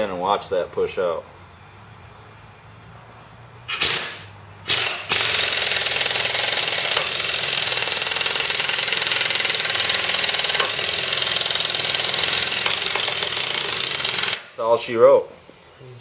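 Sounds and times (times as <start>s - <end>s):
impact wrench hammering: 3.7s - 14.6s.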